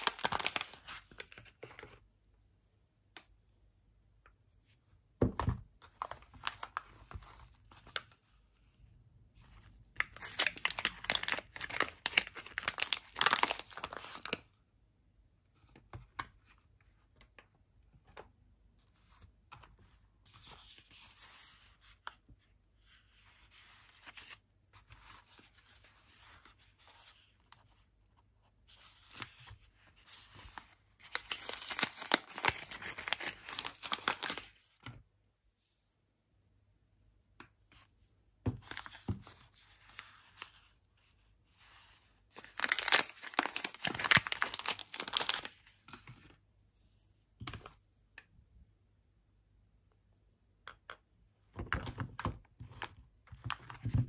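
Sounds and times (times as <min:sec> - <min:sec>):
wrappers tearing and crinkling: 0:00.0 - 0:00.9, 0:10.0 - 0:14.3, 0:31.1 - 0:34.4, 0:42.4 - 0:45.5.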